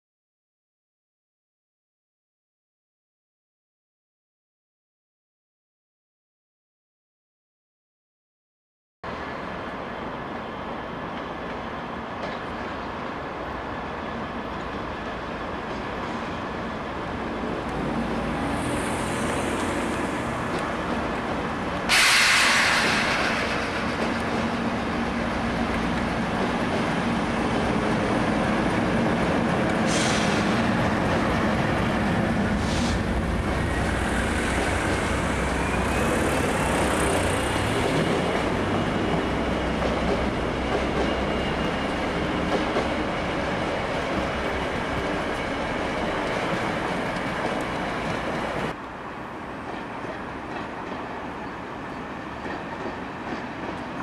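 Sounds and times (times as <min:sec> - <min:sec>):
freight train rumbling past: 0:09.1 - 0:54.0
loud rush of air: 0:21.9 - 0:24.6, 0:29.8 - 0:30.9, 0:32.0 - 0:37.9.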